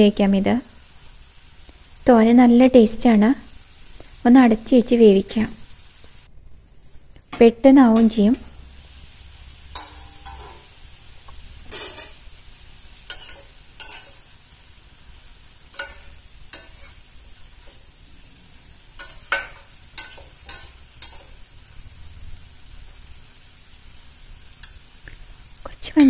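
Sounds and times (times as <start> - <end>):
frying hiss: 0.0 - 26.0
metal spatula scraping pan: 9.7 - 10.8, 11.5 - 12.2, 13.1 - 14.3, 15.7 - 17.0, 19.0 - 21.3.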